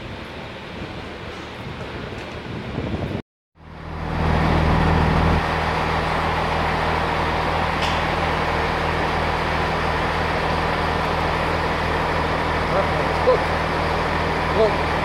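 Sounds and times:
train diesel engine idling: 0:03.6 - 0:15.0.

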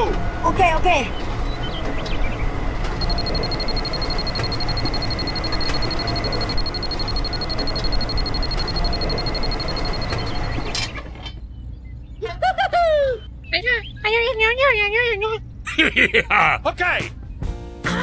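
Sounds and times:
fast high electronic beeping: 0:03.0 - 0:11.0.

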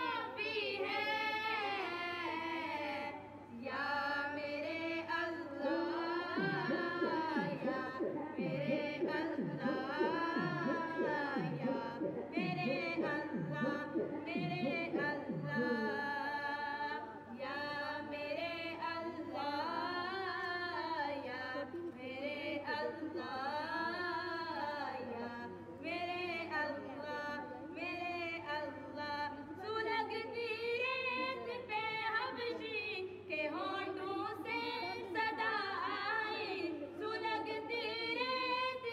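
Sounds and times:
person singing unaccompanied: 0:00.0 - 0:38.9
low pulse: 0:05.7 - 0:16.4.

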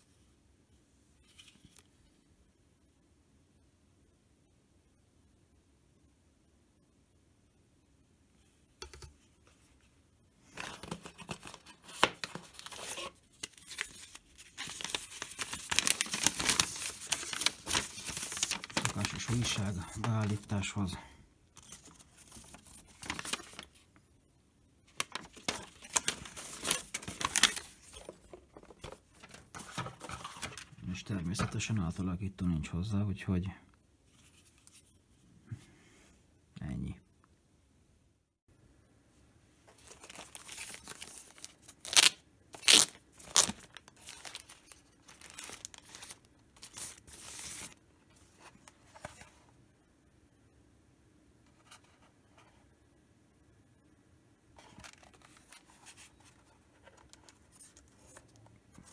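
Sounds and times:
paper rustling and crackling: 0:10.5 - 0:20.7, 0:21.6 - 0:23.8, 0:24.9 - 0:31.6, 0:39.7 - 0:49.4, 0:54.6 - 0:58.9
plastic bag crinkling and tearing: 0:10.7 - 0:20.6, 0:25.0 - 0:28.1, 0:39.8 - 0:47.8
loud sharp plastic crackles: 0:41.8 - 0:46.2.

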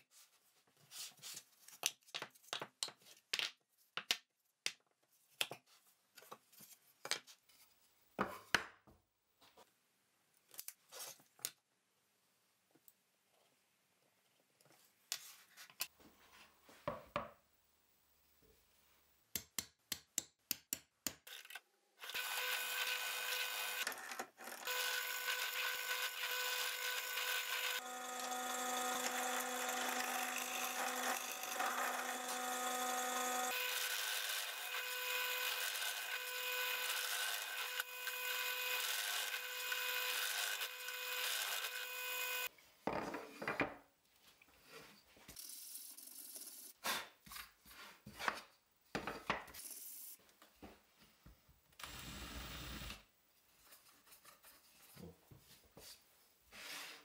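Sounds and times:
drill press boring wood: 0:22.0 - 0:42.5, 0:51.8 - 0:53.0.

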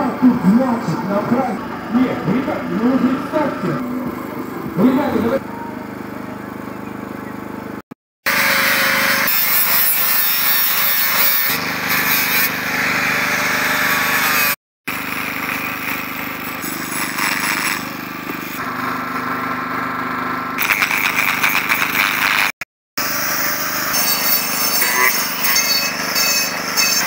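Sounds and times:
angle grinder motor whine: 0:00.0 - 0:27.0.

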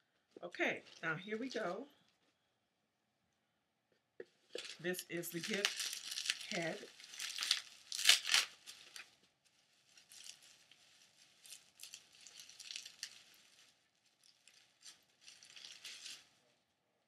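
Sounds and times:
plastic wrapping crinkling: 0:00.3 - 0:02.4, 0:04.3 - 0:16.5.

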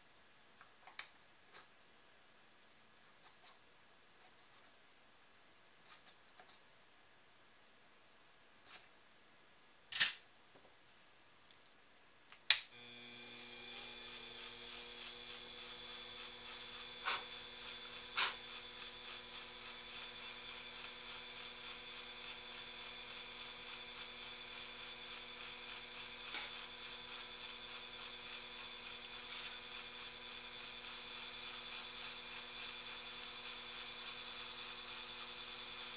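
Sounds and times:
electric motor humming and whining: 0:12.7 - 0:35.9.

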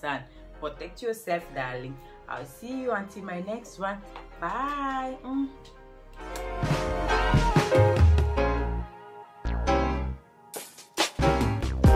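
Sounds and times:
background music with a beat: 0:04.1 - 0:11.9.

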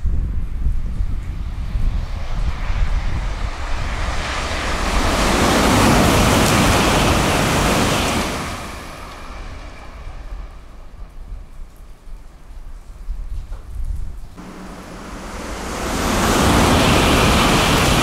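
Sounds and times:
wind rumble on microphone: 0:00.0 - 0:18.0
high-speed train roaring past: 0:02.4 - 0:11.0, 0:14.4 - 0:18.0.

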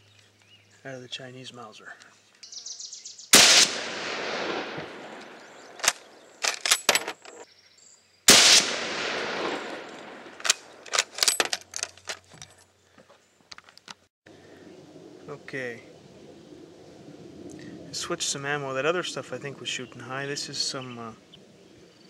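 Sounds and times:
rifle shots with echo: 0:03.4 - 0:06.2, 0:08.3 - 0:11.1
rifle bolt metallic clicks: 0:04.8 - 0:07.4, 0:08.4 - 0:12.3.

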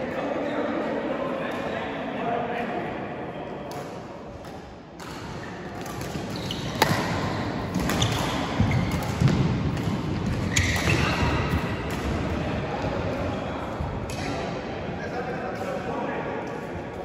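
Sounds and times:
racket striking shuttlecock: 0:05.8 - 0:11.1.

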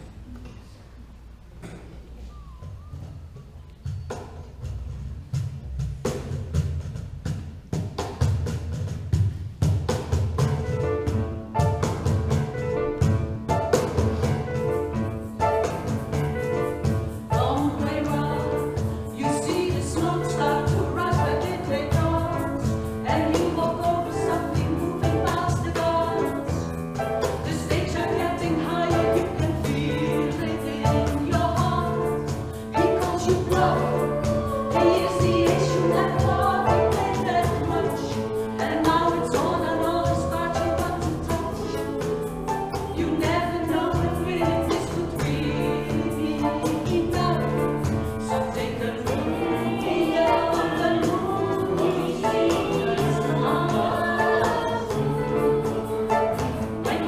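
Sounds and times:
vocal group singing in harmony: 0:15.3 - 0:57.0.

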